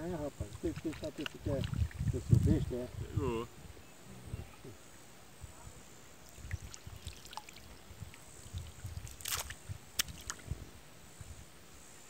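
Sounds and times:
squelches and splashes in water: 0:00.4 - 0:02.6, 0:06.3 - 0:10.4
water rush: 0:06.2 - 0:10.4.

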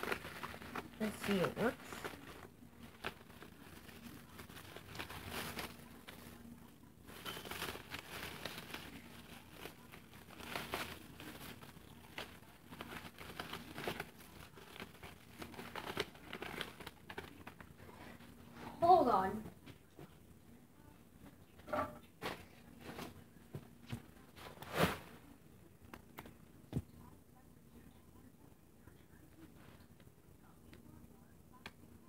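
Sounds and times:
tape crinkling and rustling: 0:00.0 - 0:18.2
faint steady hum: 0:00.0 - 0:32.0.

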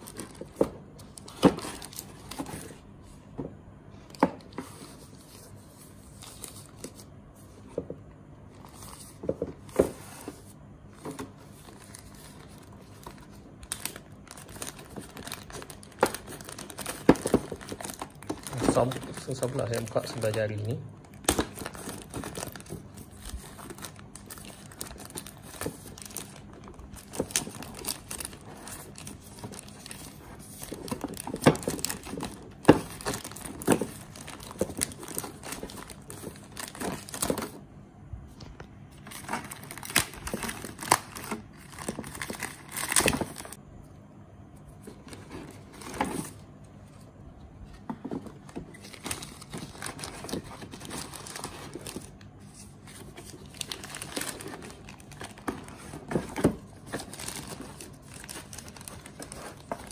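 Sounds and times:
plastic bags crinkling: 0:11.5 - 0:37.6, 0:39.0 - 0:43.6, 0:48.0 - 0:59.9.

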